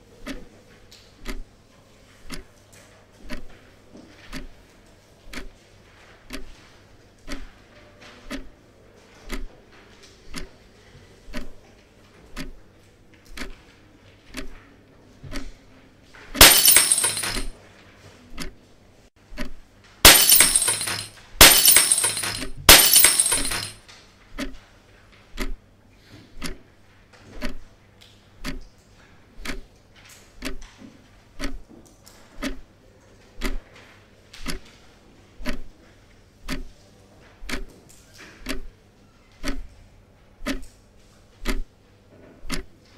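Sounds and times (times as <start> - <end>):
wall clock ticking: 0.2 - 0.5, 1.2 - 1.5, 2.2 - 2.5, 4.3 - 4.5, 5.3 - 5.5, 6.3 - 6.5, 7.2 - 7.5, 8.3 - 8.5, 9.3 - 9.5, 12.3 - 12.6, 28.4 - 28.6, 31.4 - 31.6, 32.4 - 32.7, 36.4 - 36.8, 38.4 - 38.7, 39.4 - 39.7, 40.4 - 40.6, 41.4 - 41.7, 42.4 - 42.8
glass breaking: 16.4 - 17.5, 20.1 - 23.8.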